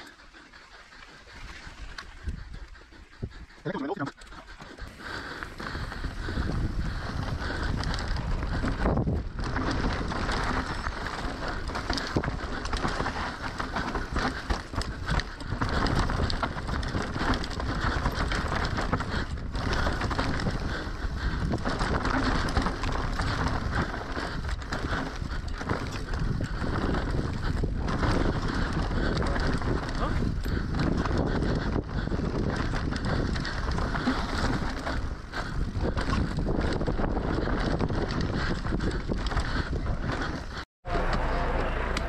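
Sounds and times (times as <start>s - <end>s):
wind on microphone: 1.2s - 42.0s
bike tyres on dirt and stones: 4.2s - 42.0s
bike rattling and knocking: 4.4s - 41.3s.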